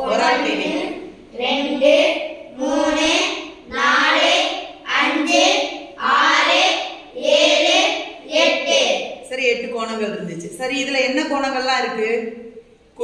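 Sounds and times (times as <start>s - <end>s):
children chanting in unison: 0.0s - 9.2s.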